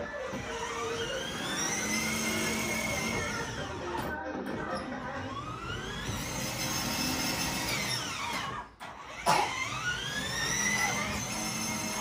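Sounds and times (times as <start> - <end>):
toy car electric motors whining: 0.0 - 3.9, 5.0 - 12.0.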